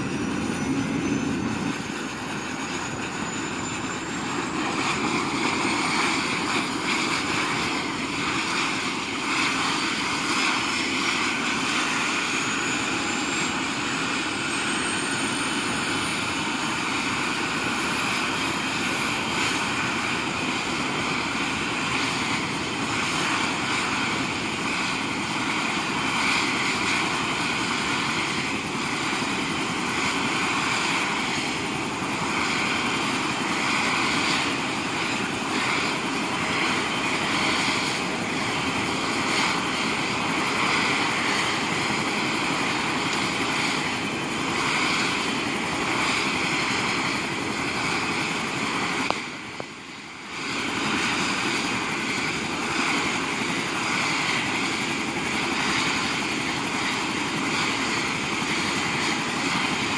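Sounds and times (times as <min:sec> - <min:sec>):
high whine rising in pitch: 0:00.0 - 0:16.3
helicopter turbine and rotor: 0:00.0 - 0:59.9.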